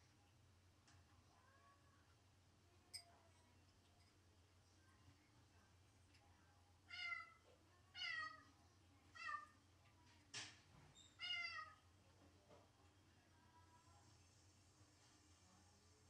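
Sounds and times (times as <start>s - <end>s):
cat meowing: 6.9s - 7.4s, 11.2s - 11.8s.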